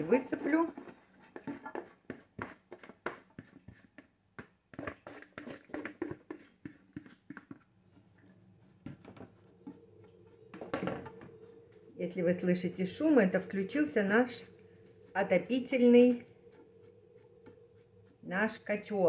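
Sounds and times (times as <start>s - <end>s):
furnace humming: 7.8s - 19.0s.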